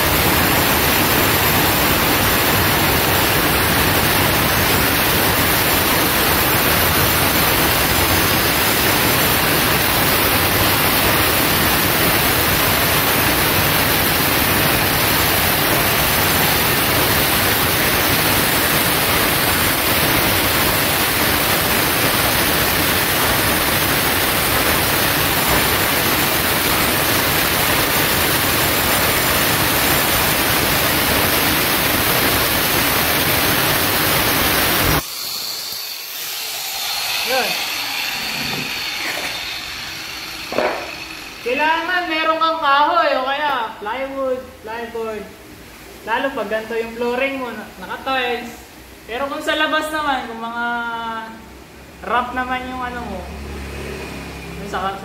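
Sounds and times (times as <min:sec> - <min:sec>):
angle grinder cutting tile: 0:00.1 - 0:42.0.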